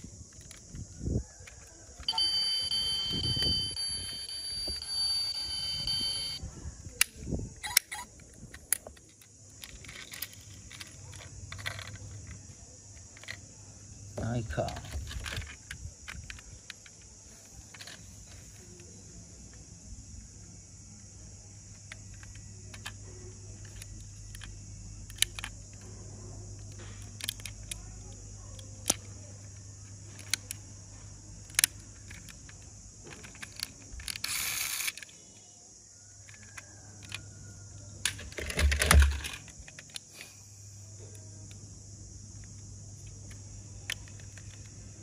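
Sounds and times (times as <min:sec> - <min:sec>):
toy cars clicking and tapping: 0:07.7 - 0:13.5, 0:21.7 - 0:25.8, 0:26.6 - 0:30.6, 0:31.4 - 0:35.2, 0:42.4 - 0:45.0
toys clattering in plastic basket: 0:38.1 - 0:39.8.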